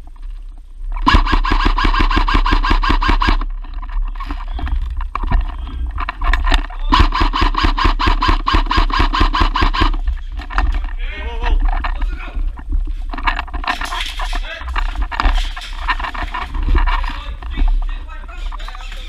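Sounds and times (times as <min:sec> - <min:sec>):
clicks and clatter: 0:00.1 - 0:19.0
airsoft rifle automatic bursts: 0:01.0 - 0:03.5, 0:06.9 - 0:10.0.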